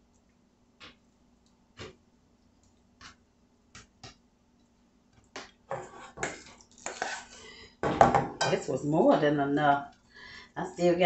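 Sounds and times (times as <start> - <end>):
utensil scraping metal bowl: 5.7 - 7.4.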